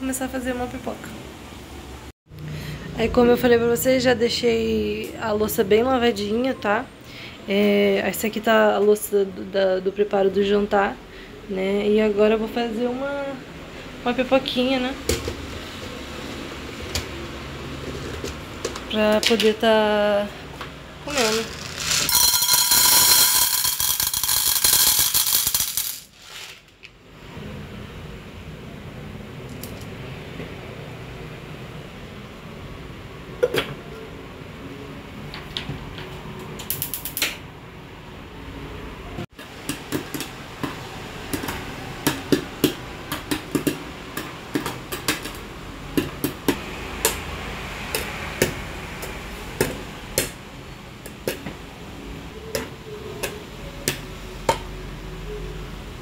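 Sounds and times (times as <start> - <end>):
popcorn popping in hot oil: 21.3 - 26.1, 39.3 - 50.4, 51.0 - 51.6.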